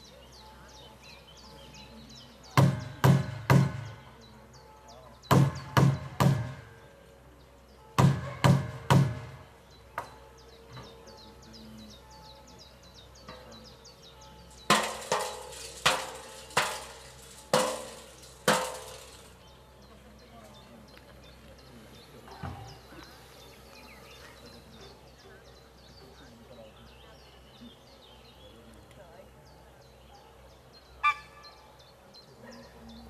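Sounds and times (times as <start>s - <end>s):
faint birds chirping: 0.0s - 33.0s
sharp bangs: 5.3s - 6.8s, 14.5s - 19.4s.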